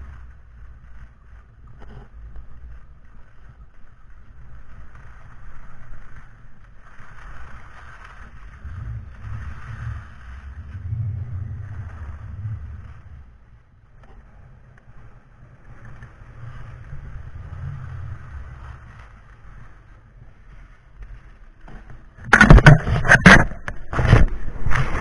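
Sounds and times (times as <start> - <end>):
knocks and scraping on microphone: 0.0 - 3.6, 5.0 - 15.0, 21.0 - 25.0
skis sliding over snow: 0.0 - 25.0.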